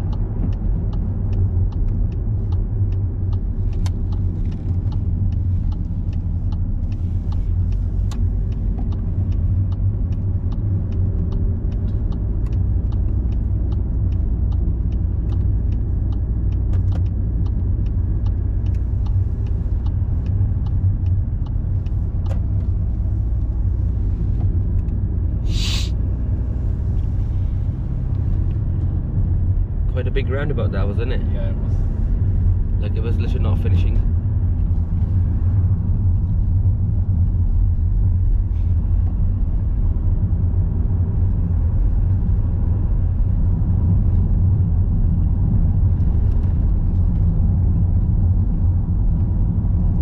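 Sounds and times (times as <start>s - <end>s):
turn indicator ticking: 0.0s - 25.4s, 26.0s - 50.0s
car engine and road noise: 0.0s - 50.0s
short hiss: 25.4s - 26.0s.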